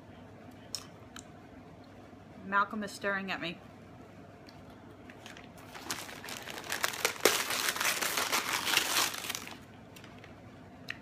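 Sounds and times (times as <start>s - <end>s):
paper packaging crinkling: 5.2s - 10.2s.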